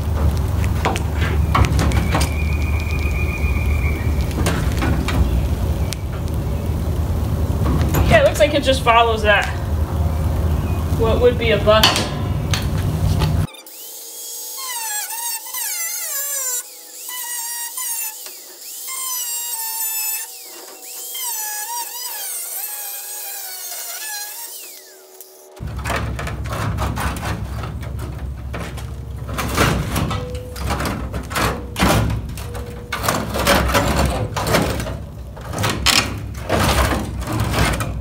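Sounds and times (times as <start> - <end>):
metal scraping and clattering: 4.3 - 5.4, 7.5 - 10.0, 11.4 - 13.5, 25.6 - 38.0
angle grinder cutting sheet steel: 11.1 - 31.8.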